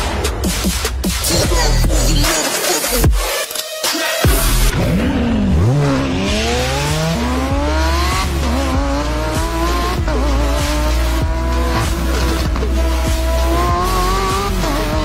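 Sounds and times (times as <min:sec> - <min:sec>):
music with deep bass: 0:00.0 - 0:15.0
car engine accelerating hard: 0:04.3 - 0:15.0.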